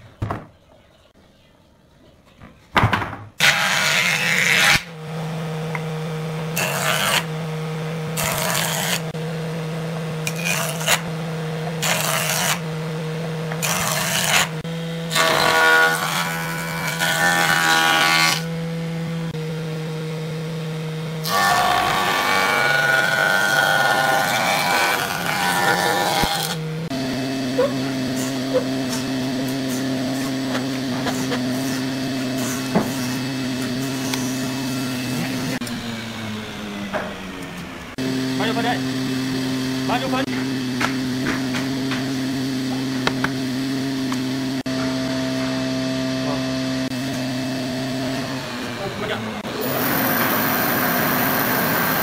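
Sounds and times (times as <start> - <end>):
wood planing bursts: 3.4 - 9.2, 10.2 - 18.6, 21.2 - 43.4, 48.2 - 52.0
jointer motor hum: 33.3 - 52.0.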